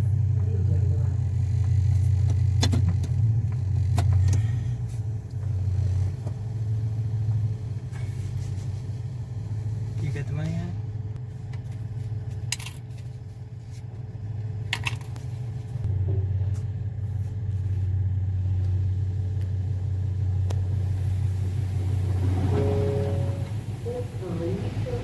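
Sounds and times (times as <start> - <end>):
car wash machinery rumbling: 13.2 - 25.0.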